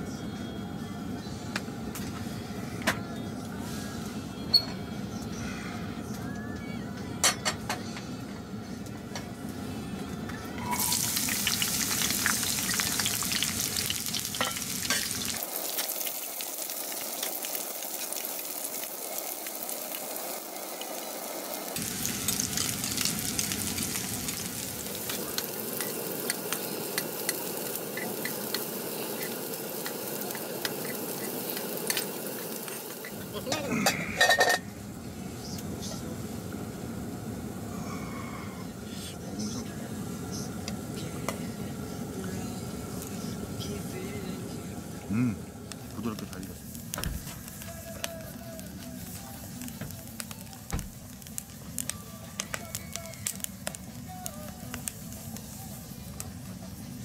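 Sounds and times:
garlic sizzling in oil: 0:10.6 - 0:34.7, 0:39.4 - 0:57.0.

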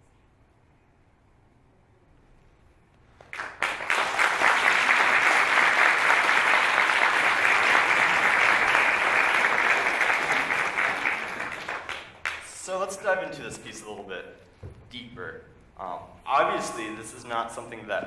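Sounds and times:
audience applause: 0:03.2 - 0:12.4.

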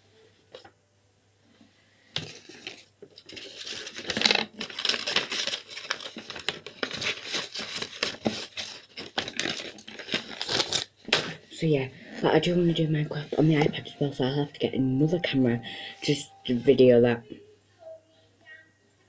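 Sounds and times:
paper envelope rustling: 0:02.2 - 0:11.2.

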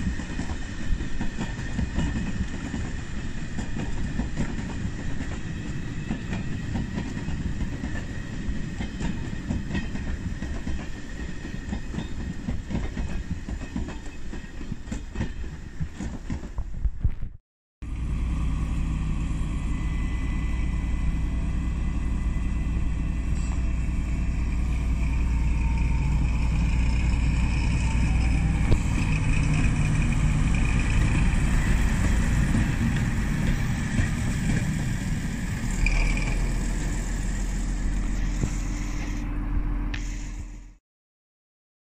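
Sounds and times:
diesel locomotive engine drone: 0:17.8 - 0:40.8.

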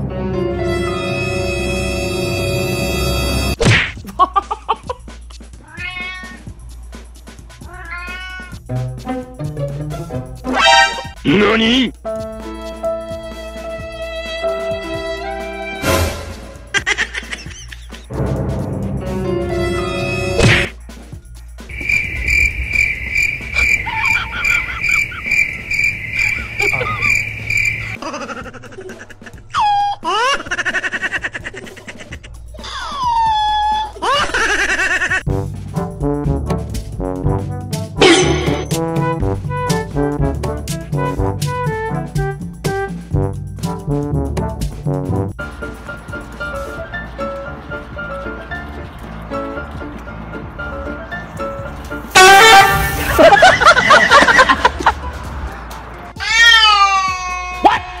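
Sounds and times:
held music chord: 0:00.0 - 0:03.6
cat meowing: 0:05.6 - 0:06.5, 0:07.6 - 0:08.6, 0:56.2 - 0:58.0
cricket chirping: 0:21.3 - 0:28.0.

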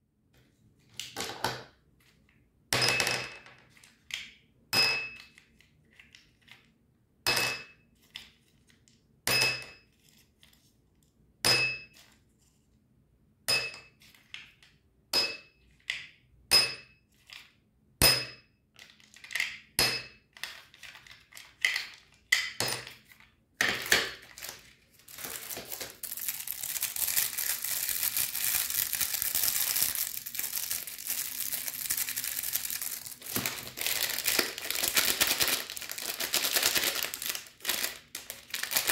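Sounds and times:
candy wrappers crinkling: 0:20.4 - 0:22.3, 0:23.0 - 0:38.9
candies clinking into glass: 0:23.6 - 0:38.9.

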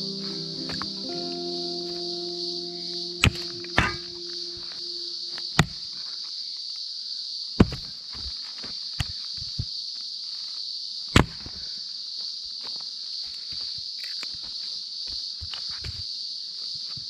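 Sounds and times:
high-pitched insect drone: 0:00.0 - 0:06.2.

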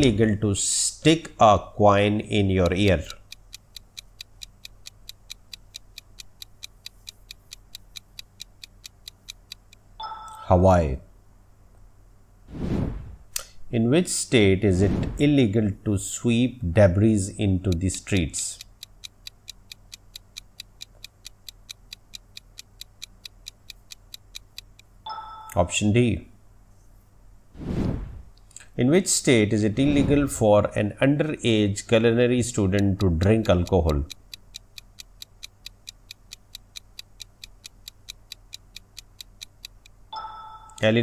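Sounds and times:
countdown timer ticking: 0:02.4 - 0:10.5, 0:17.6 - 0:25.6, 0:32.4 - 0:41.0.

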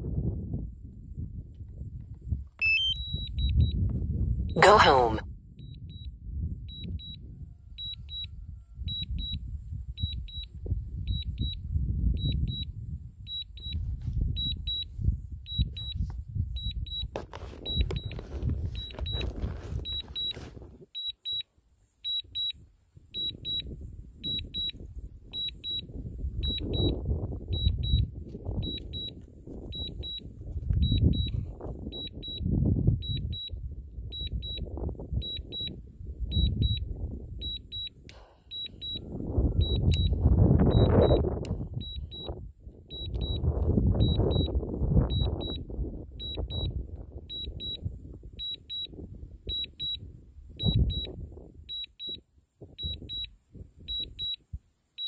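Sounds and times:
wind rumble on microphone: 0:00.0 - 0:20.9, 0:22.2 - 0:54.7
remote controller double beeps: 0:02.6 - 0:03.6, 0:04.6 - 0:05.2, 0:38.5 - 0:39.0, 0:39.6 - 0:41.2, 0:42.9 - 0:43.4.

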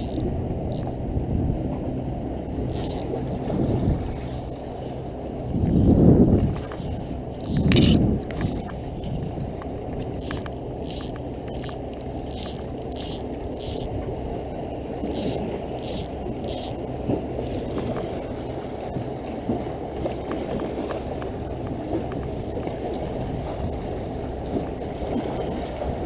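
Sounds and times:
fly line hissing zips: 0:00.0 - 0:01.0, 0:02.7 - 0:03.4, 0:06.9 - 0:08.6, 0:10.2 - 0:13.9, 0:15.0 - 0:16.8
wind: 0:00.0 - 0:26.0.

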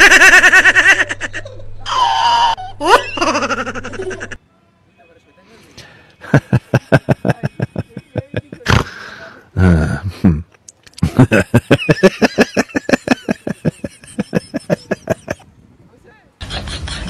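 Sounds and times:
person laughing: 0:00.0 - 0:04.4, 0:06.2 - 0:09.0, 0:09.6 - 0:15.4, 0:16.4 - 0:17.0.

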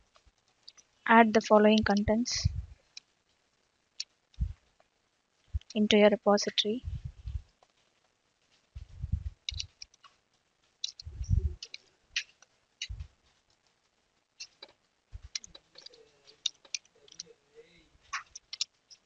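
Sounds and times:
dull low thumps: 0:02.3 - 0:02.8, 0:04.4 - 0:04.6, 0:06.8 - 0:07.5, 0:08.8 - 0:09.7, 0:11.0 - 0:11.6, 0:12.8 - 0:13.1, 0:15.2 - 0:15.4.

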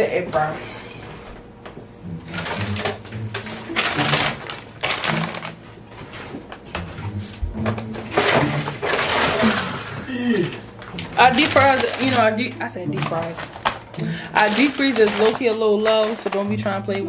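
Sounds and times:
food packages rustling: 0:02.3 - 0:06.6, 0:07.7 - 0:16.7.

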